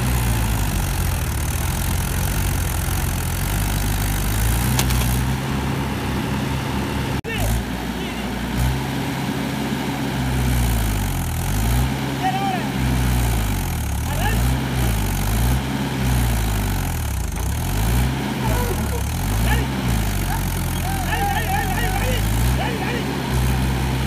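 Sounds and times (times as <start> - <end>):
tractor diesel engine revving: 0.0 - 24.0.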